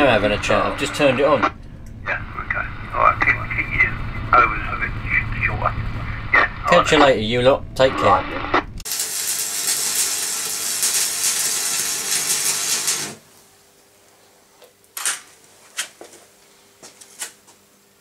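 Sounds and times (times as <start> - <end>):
arc welding crackling hiss: 8.8 - 13.5.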